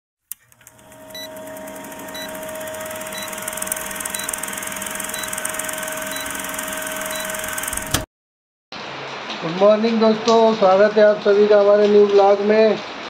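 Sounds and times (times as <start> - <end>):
film projector whirring clatter: 0.3 - 8.1
short high beep: 5.0 - 7.6.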